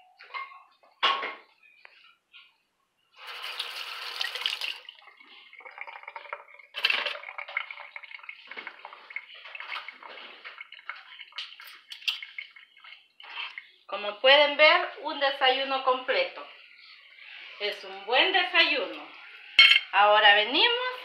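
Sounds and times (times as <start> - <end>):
water running and splashing: 3.2 - 13.9.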